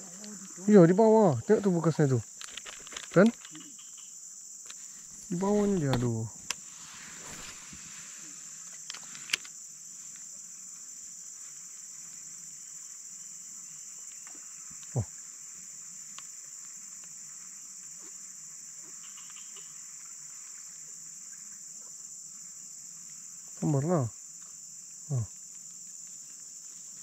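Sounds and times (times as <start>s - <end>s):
high-pitched insect drone: 0.0s - 27.0s.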